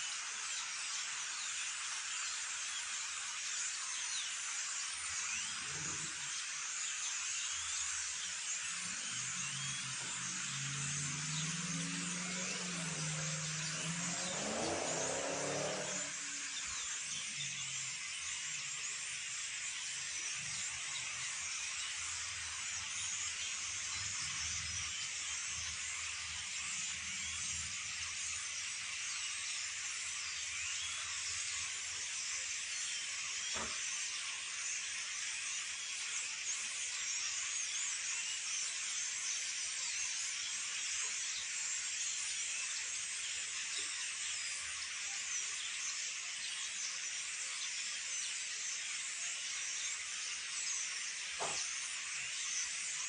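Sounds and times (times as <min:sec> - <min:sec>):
flock of birds chirping: 0:00.0 - 0:53.0
low hum: 0:08.9 - 0:17.0.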